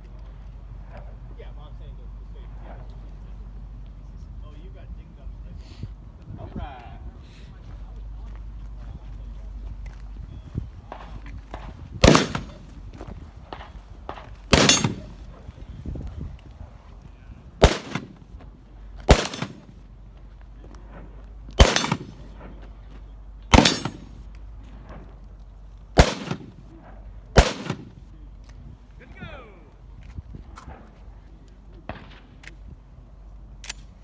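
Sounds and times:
gunshots with echo: 0:12.0 - 0:12.7, 0:13.5 - 0:15.3, 0:17.6 - 0:18.2, 0:19.1 - 0:19.7, 0:21.6 - 0:22.5, 0:23.5 - 0:24.2, 0:26.0 - 0:26.7, 0:27.4 - 0:28.0.

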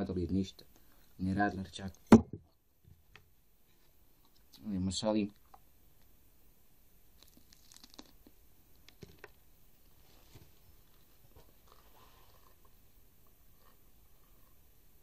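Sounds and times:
crunching of pepper being chewed: 0:07.2 - 0:08.2.

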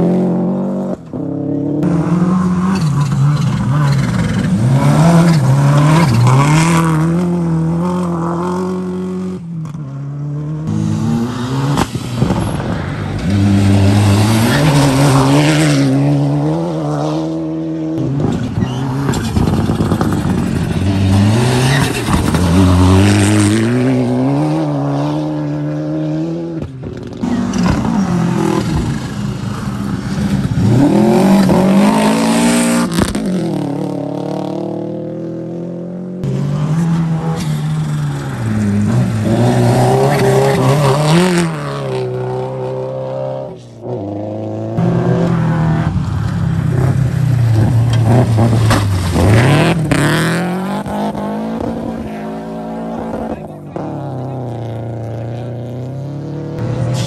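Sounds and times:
engines revving through gears: 0:13.3 - 0:57.0
rally cars passing on gravel: 0:36.2 - 0:57.0.

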